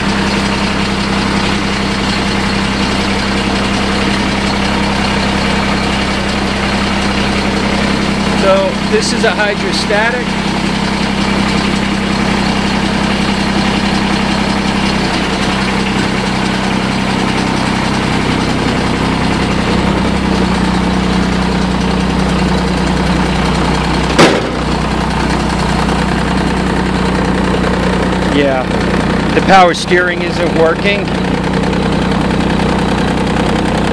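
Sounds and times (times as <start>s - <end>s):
diesel engine running: 0.0s - 33.9s
sharp knock: 24.2s - 24.7s.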